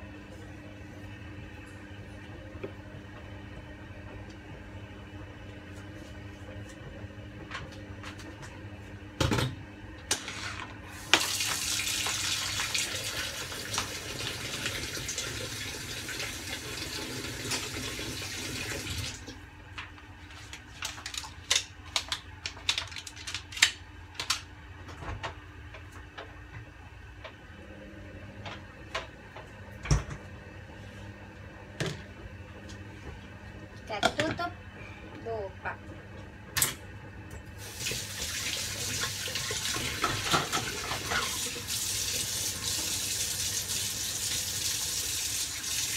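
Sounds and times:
water tap running: 10.9s - 19.4s, 37.6s - 45.9s.

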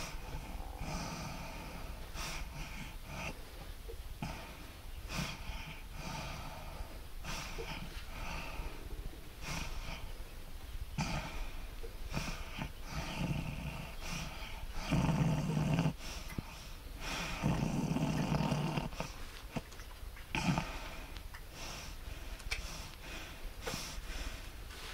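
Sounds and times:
woman snoring breathing: 11.0s - 16.0s, 17.0s - 19.1s.

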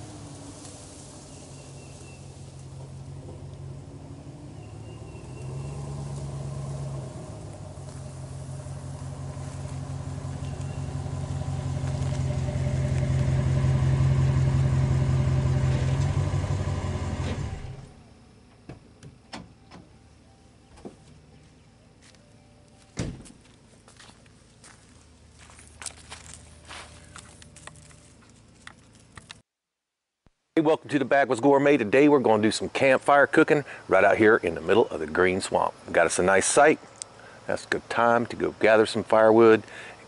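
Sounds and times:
footsteps on dry leaves: 0.0s - 3.2s, 4.8s - 14.3s, 21.4s - 29.4s
pickup truck engine running: 0.0s - 18.5s.

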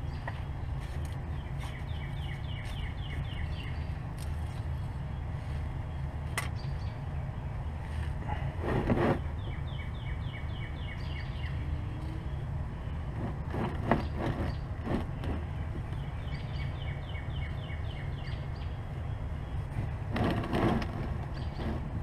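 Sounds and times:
bird chirping: 0.0s - 8.4s, 9.2s - 13.1s, 13.9s - 20.0s
steady low hum: 0.0s - 22.0s
plastic pan scraping rustle: 8.6s - 9.3s, 13.1s - 15.5s, 20.1s - 22.0s.

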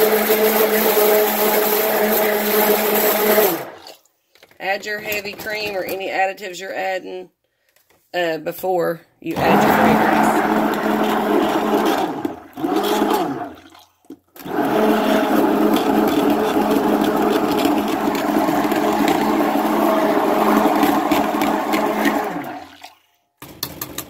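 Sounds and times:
stick blender churning batter: 0.0s - 4.1s, 9.3s - 23.0s.

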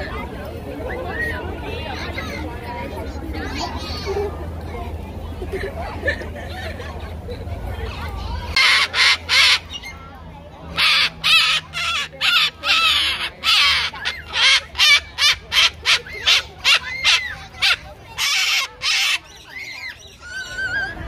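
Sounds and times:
cockatoo screeching: 10.8s - 21.0s.

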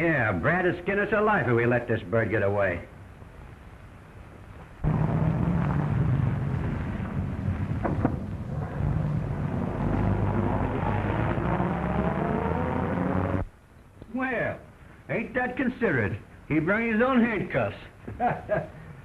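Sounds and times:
car engine rumbling: 4.8s - 13.5s.

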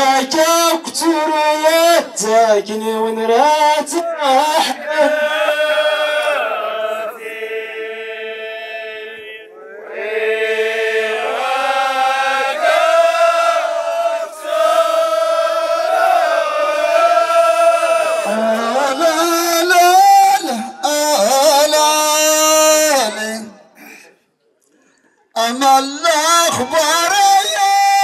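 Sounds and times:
voices chanting slow melody: 4.6s - 18.8s.

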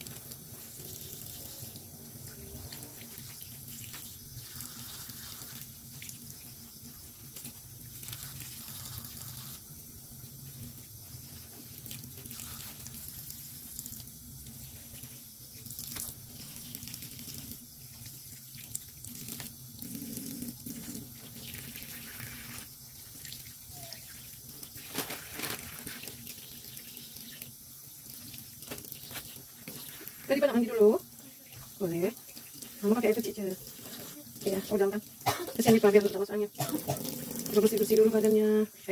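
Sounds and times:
tap water running into sink: 10.6s - 38.5s.

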